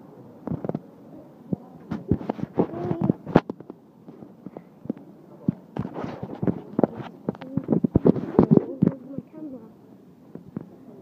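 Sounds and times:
phone rubbing against clothing: 1.9 - 3.5, 5.8 - 9.0.

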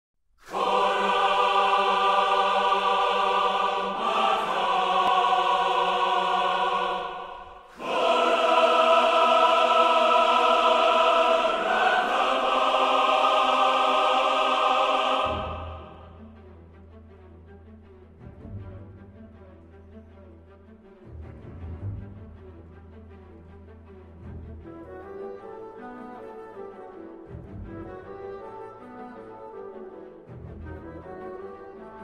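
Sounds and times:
music of long held chords: 0.5 - 21.3.

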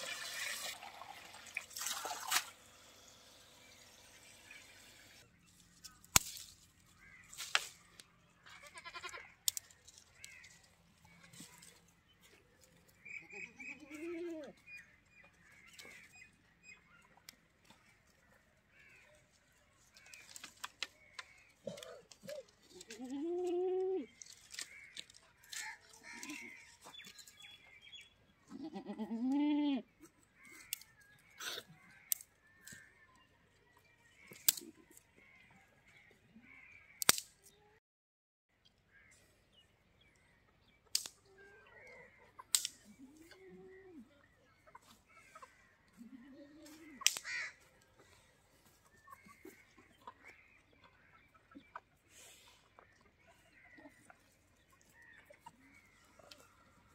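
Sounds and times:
goat bleating: 8.4 - 9.3, 22.8 - 24.0, 28.5 - 29.8, 46.0 - 47.5
sharp clicks: 37.0 - 37.4.

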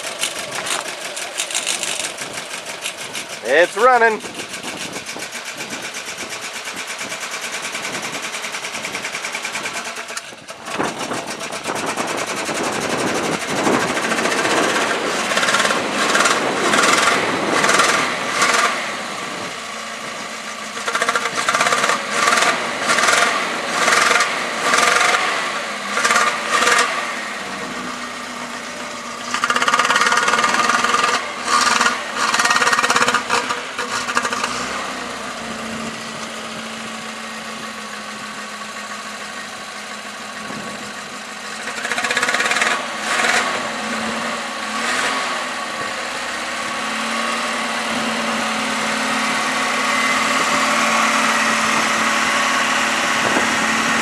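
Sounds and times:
car engine revving: 0.0 - 54.0
man talking: 3.4 - 4.2.

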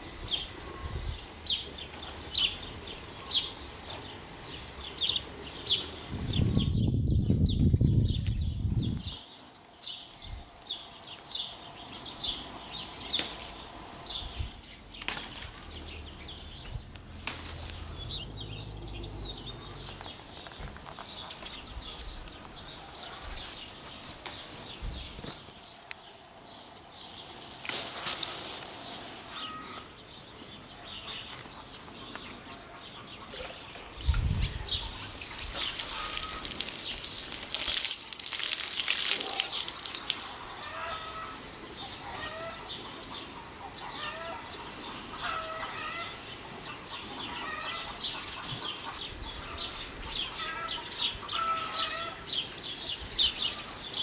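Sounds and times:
small birds chirping: 0.0 - 54.0
rustling: 16.6 - 18.2, 23.8 - 29.8.

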